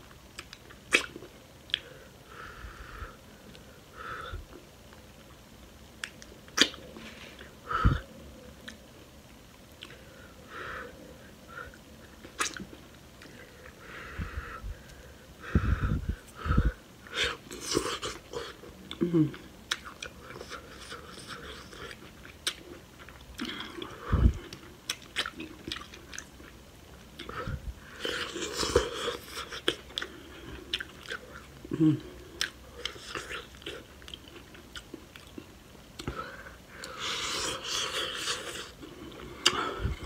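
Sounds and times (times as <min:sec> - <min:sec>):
wet chewing: 0:19.7 - 0:26.6, 0:28.0 - 0:31.5.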